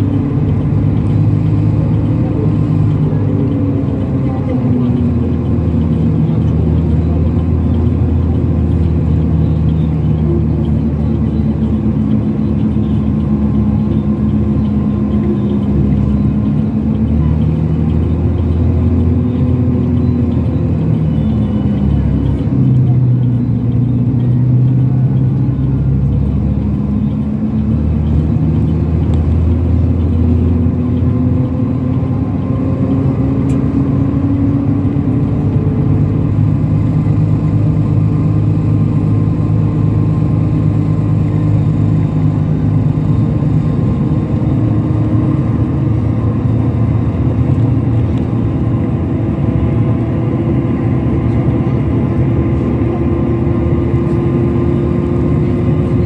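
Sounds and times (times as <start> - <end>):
coach engine and road noise: 0.0 - 56.0.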